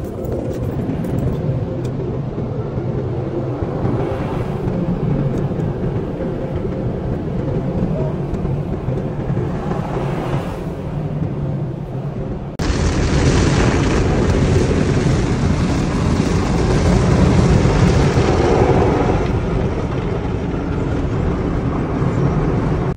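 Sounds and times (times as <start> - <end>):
car wash motors and brushes rumbling: 0.0 - 22.9.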